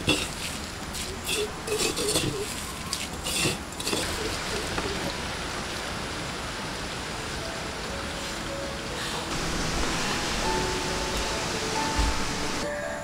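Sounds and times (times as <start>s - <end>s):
steady even hiss: 6.0s - 13.0s.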